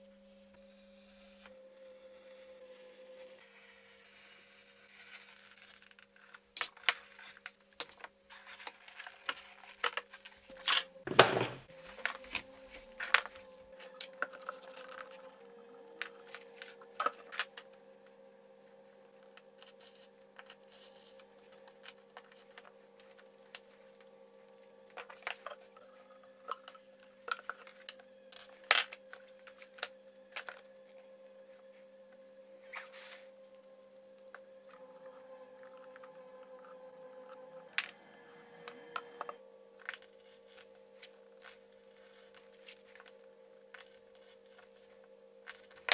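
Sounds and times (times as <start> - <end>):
faint steady hum: 0.0 - 45.9.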